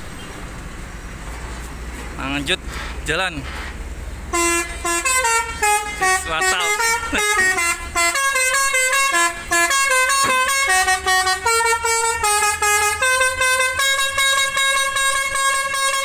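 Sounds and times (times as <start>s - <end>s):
bus horn playing melody: 4.3s - 16.0s.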